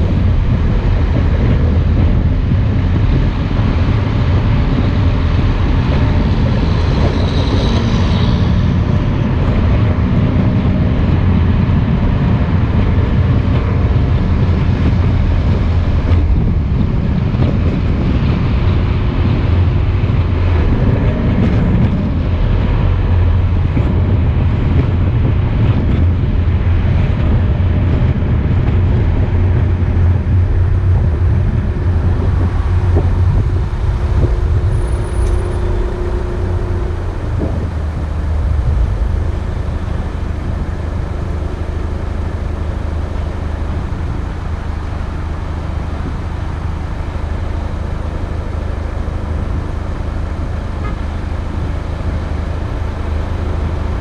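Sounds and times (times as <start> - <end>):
car road noise: 0.0 - 54.0.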